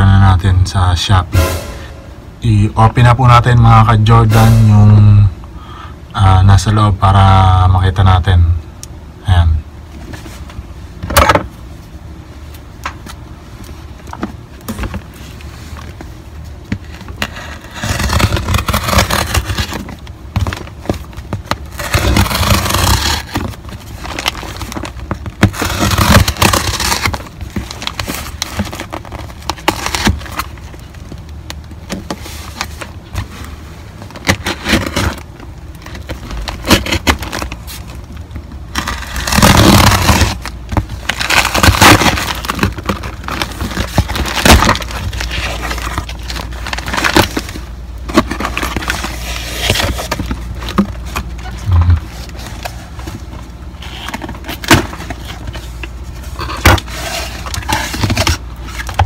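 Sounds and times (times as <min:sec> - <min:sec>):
cardboard and tape ripping: 0:16.8 - 0:30.7, 0:34.1 - 0:38.0, 0:38.7 - 0:53.0, 0:53.8 - 0:59.0.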